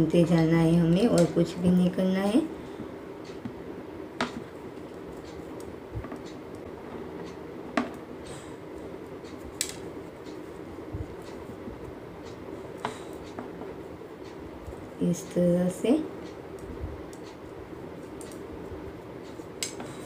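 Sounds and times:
low background hum: 0:00.0 - 0:20.0
knitting needles clicking: 0:18.0 - 0:18.5.

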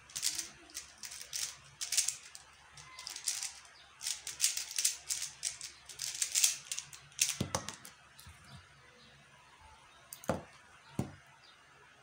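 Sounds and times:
puzzle cube plastic clicks: 0:00.1 - 0:07.9.

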